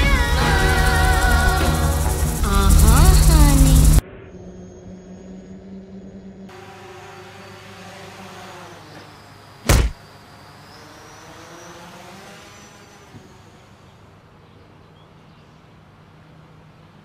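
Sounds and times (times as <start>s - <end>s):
drone propellers humming: 0.0s - 14.4s
loud thump: 9.6s - 10.0s.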